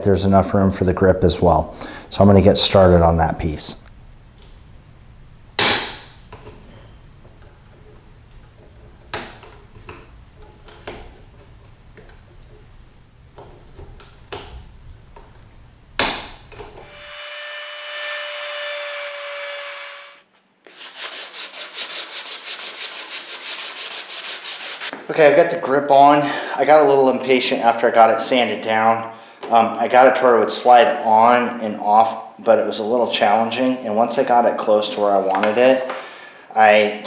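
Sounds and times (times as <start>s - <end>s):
hand sanding strokes: 18.0s - 24.9s
steady rubbing: 20.7s - 24.9s.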